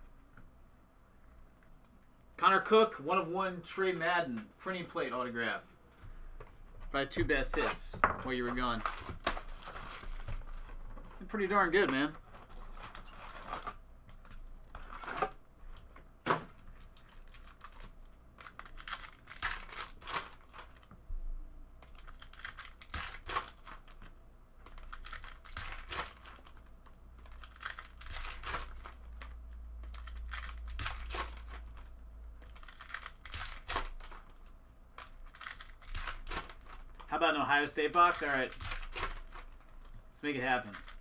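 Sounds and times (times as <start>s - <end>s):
wrappers crinkling as torn open: 16.7s - 20.9s, 21.8s - 41.0s.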